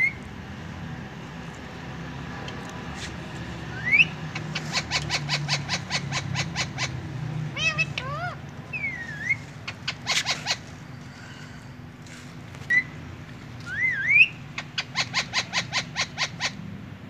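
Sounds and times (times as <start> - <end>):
parakeet chirps: 0.0 - 0.2, 3.7 - 11.0, 12.7 - 13.0, 13.6 - 16.6
parakeet sharp calls: 0.0 - 0.2, 3.6 - 11.8, 12.6 - 13.0, 13.6 - 16.6
parakeet whistling: 3.7 - 7.0, 7.6 - 10.6, 12.7 - 13.0, 13.7 - 16.6.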